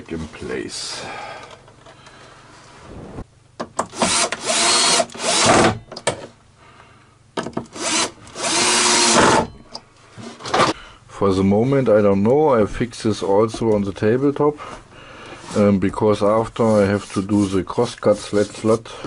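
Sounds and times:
cordless drill driving screws: 3.9 - 5.7, 7.7 - 9.4.

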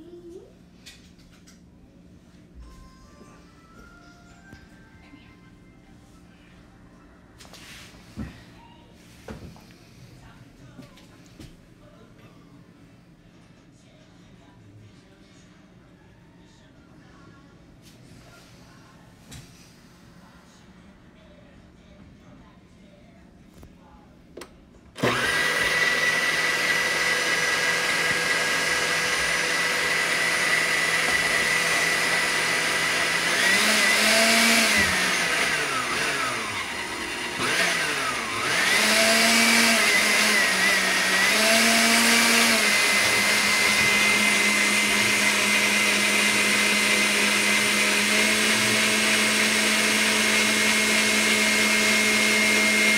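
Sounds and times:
kitchen mixer motor whining: 25.0 - 52.9.

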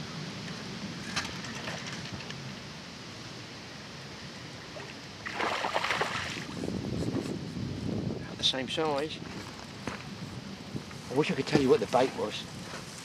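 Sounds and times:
water splashing: 4.8 - 6.6.

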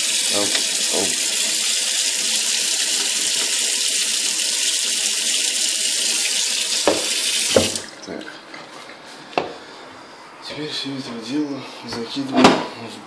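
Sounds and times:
tap water running into sink: 0.0 - 8.2.

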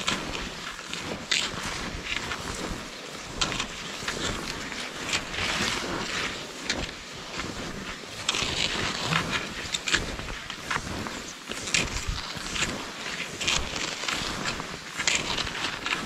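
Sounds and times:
ski poles crunching snow: 0.0 - 16.0
skis swishing over snow: 0.0 - 16.0.

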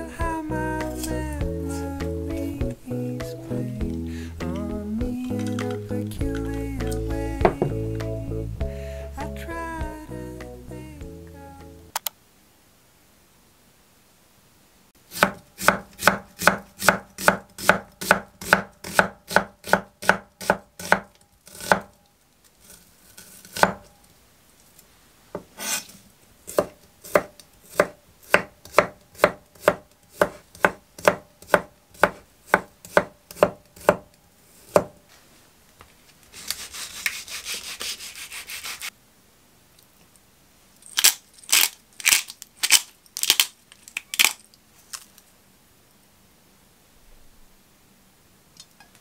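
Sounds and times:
knife chopping on wooden board: 7.4 - 7.8, 15.1 - 21.9, 23.5 - 23.8, 26.5 - 34.1, 34.7 - 35.0.

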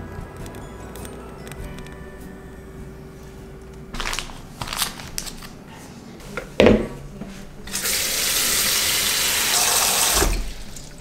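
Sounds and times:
tap water running into sink: 7.7 - 11.0.

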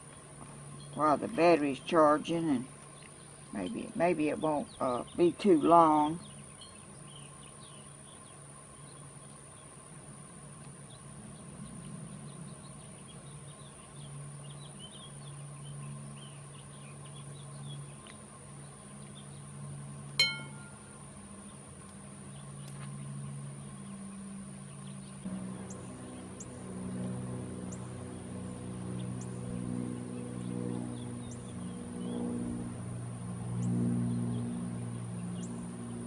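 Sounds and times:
low steady hum: 0.0 - 36.0
clink of glass tiles: 20.2 - 20.8.

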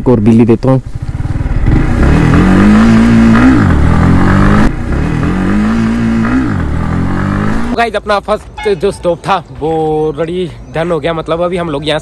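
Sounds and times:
motorcycle engine revving: 0.8 - 7.8.

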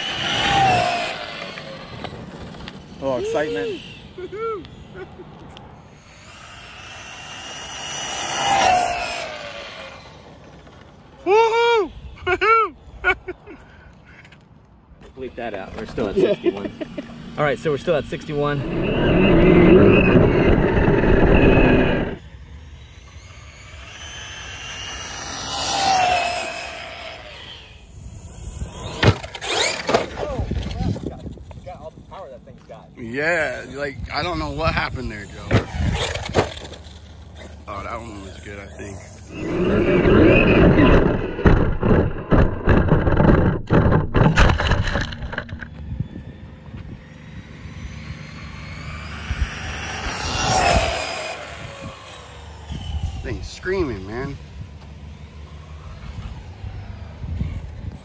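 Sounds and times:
high motor whine: 0.0 - 58.0
rc truck motor and tyres rumbling: 0.0 - 58.0
rushing noise at speed: 16.8 - 29.7, 39.3 - 45.9
toy truck tumbling knocks and thuds: 35.5 - 37.0, 40.9 - 45.8.

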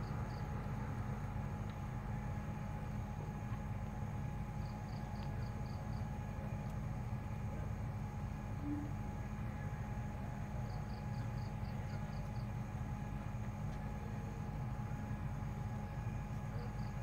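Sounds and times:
faint steady whine: 0.0 - 17.0
low hum and rumble: 0.0 - 17.0.

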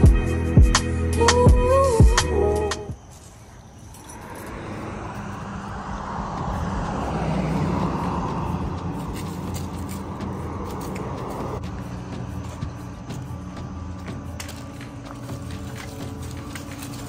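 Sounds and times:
vehicle passing: 3.7 - 17.0.

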